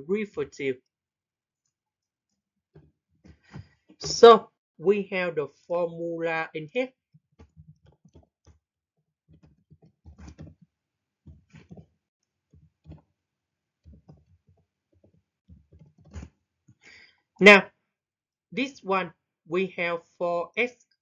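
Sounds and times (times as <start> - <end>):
faint keyboard typing: 9.3 - 10.6, 13.8 - 16.3.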